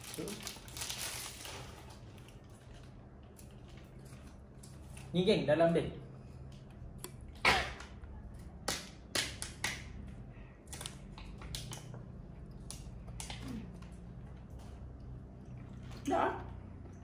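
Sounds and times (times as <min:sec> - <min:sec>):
plastic wrapper crinkling: 0:00.0 - 0:05.2.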